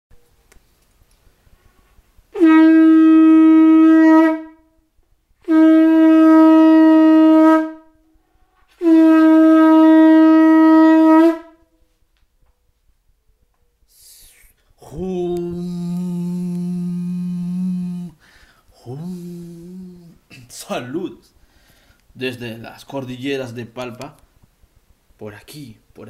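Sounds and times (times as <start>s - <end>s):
horn blasts: 1.6s - 4.6s, 5.4s - 11.6s, 14.9s - 18.3s.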